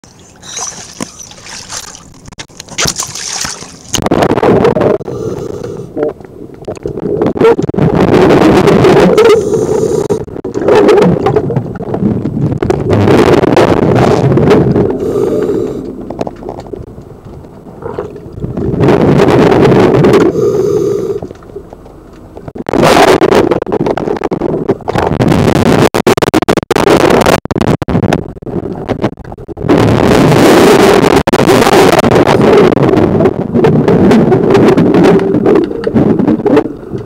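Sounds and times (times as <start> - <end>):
diver exhaling bubbles underwater: 0.4 - 2.0.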